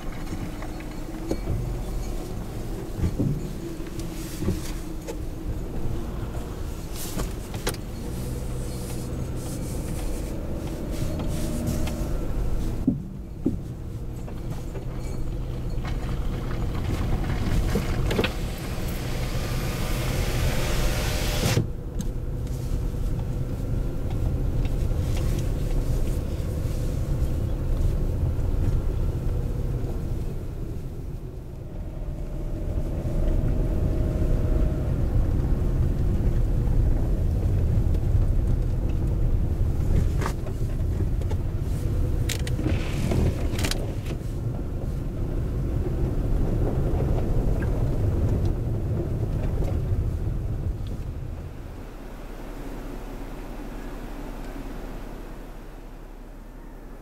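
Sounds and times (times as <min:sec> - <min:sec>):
engine and tyre rumble: 0:00.0 - 0:57.0
loud hiss: 0:18.4 - 0:21.6.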